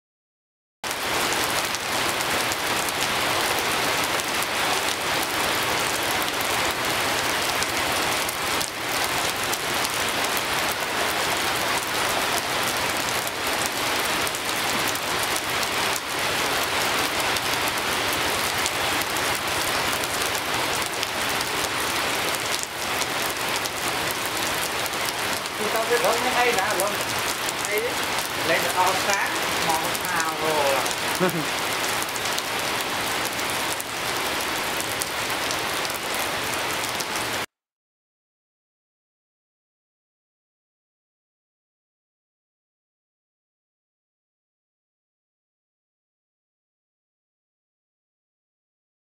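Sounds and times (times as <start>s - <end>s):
rain falling on wet road: 0.8s - 37.5s.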